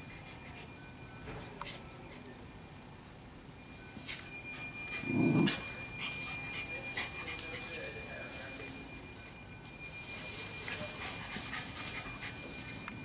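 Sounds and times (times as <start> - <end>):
high ringing tones: 0.0 - 13.0
metal jingling and clinking: 2.2 - 13.0
dog grumbling: 5.0 - 5.7.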